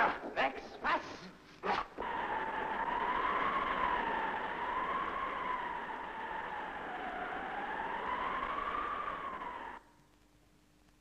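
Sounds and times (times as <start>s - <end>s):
wailing siren-like tone: 2.0s - 9.9s.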